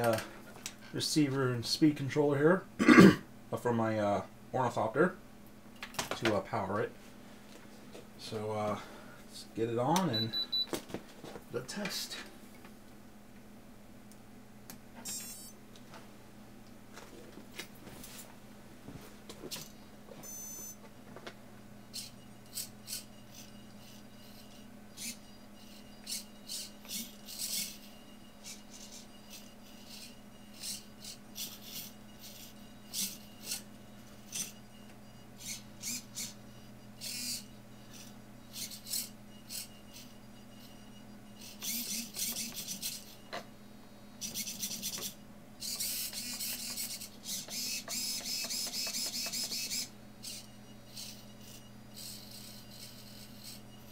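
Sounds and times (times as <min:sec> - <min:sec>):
steady low hum: 0:00.0 - 0:53.9
servos whirring: 0:15.0 - 0:15.6, 0:21.8 - 0:53.9.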